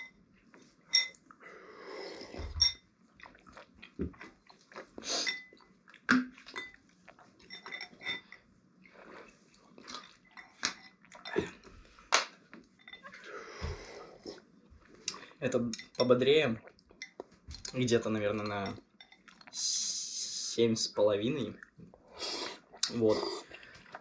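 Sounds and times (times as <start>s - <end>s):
chewing and slurping noodles: 3.2s - 11.6s, 21.6s - 24.0s.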